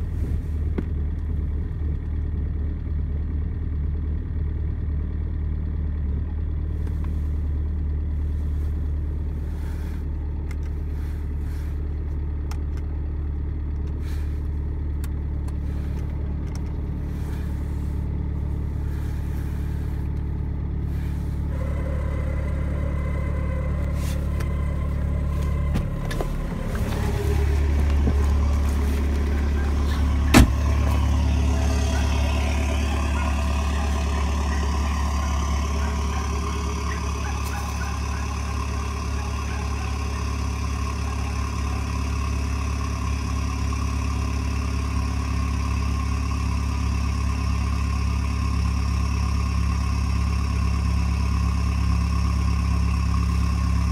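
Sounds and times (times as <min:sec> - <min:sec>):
diesel engine idling: 0:00.0 - 0:53.9
sharp thump: 0:30.3 - 0:30.6.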